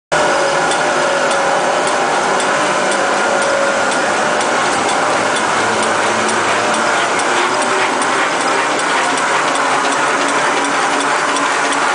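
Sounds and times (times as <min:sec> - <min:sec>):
machine whirring with faint whine: 0:00.1 - 0:11.9
light regular ticking: 0:00.2 - 0:11.9.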